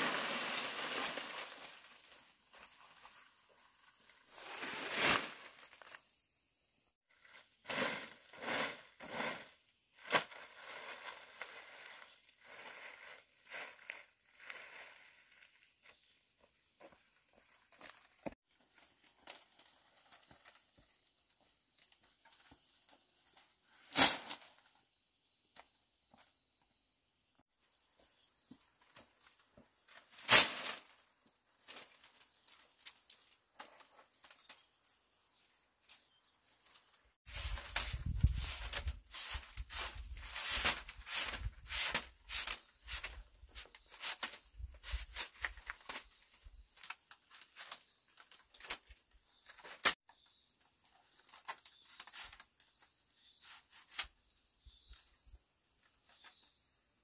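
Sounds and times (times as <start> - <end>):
bamboo strips clattering: 0.0 - 3.2, 23.8 - 24.6, 29.9 - 34.6, 36.6 - 50.0.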